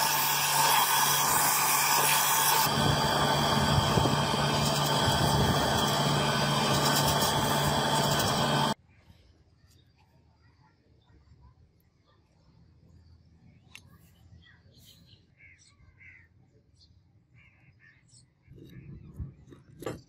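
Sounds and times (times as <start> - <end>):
belt sander sanding wood: 0.0 - 8.8.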